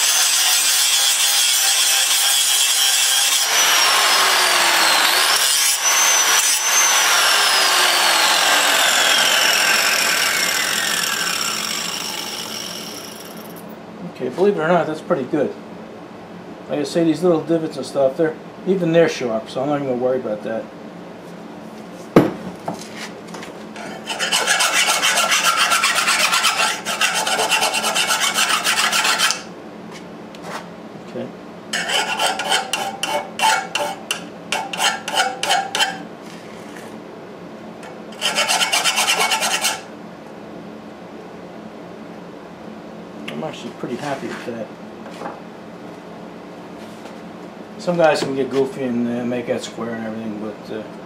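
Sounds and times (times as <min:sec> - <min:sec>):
angle grinder grinding steel: 0:00.0 - 0:13.6, 0:23.8 - 0:29.5, 0:31.8 - 0:36.0, 0:38.1 - 0:39.9
grinder knocking on wooden bench: 0:22.2 - 0:22.8.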